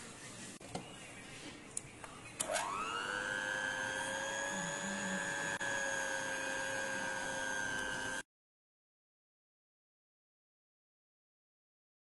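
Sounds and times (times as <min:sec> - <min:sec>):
electric hand mixer whining: 0:02.4 - 0:08.3.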